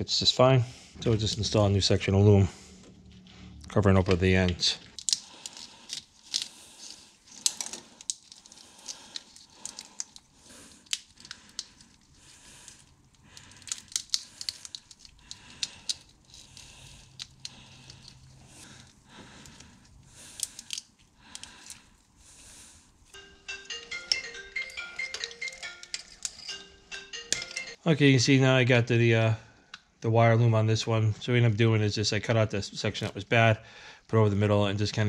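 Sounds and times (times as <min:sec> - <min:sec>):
plastic wire loom crinkling: 0:04.9 - 0:21.9
mallet-like music: 0:23.2 - 0:27.8.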